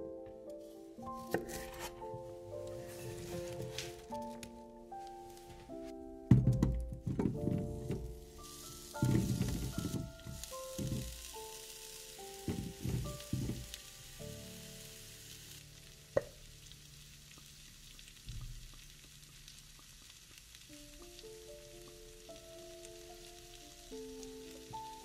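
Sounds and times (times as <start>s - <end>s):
soft background music: 0.0s - 25.0s
dull knocks: 6.3s - 8.2s, 9.0s - 11.2s, 12.5s - 13.7s
food sizzling in a frying pan: 7.2s - 25.0s.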